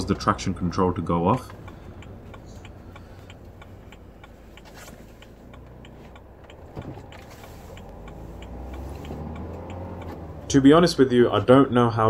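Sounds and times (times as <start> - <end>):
engine and road rumble: 0.0 - 12.0
turn signal ticking: 0.0 - 12.0.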